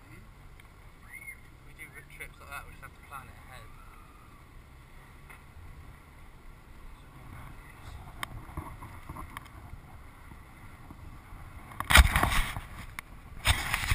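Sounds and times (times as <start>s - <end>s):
car cabin road rumble: 0.0s - 13.9s.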